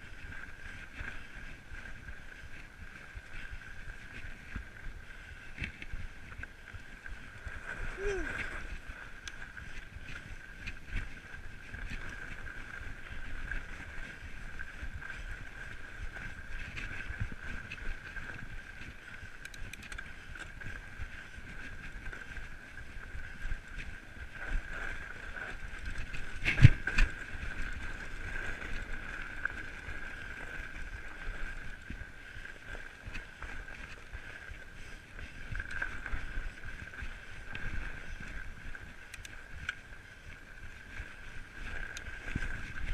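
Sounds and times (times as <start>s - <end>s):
bike tyres rolling on snow: 0.0s - 42.9s
constant high hum: 2.7s - 13.0s.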